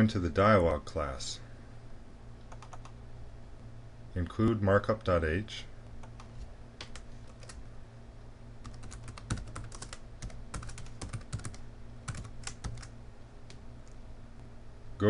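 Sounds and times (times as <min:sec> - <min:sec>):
steady low hum: 0:00.0 - 0:15.0
keyboard typing: 0:02.5 - 0:03.0, 0:06.0 - 0:07.6, 0:08.6 - 0:12.9.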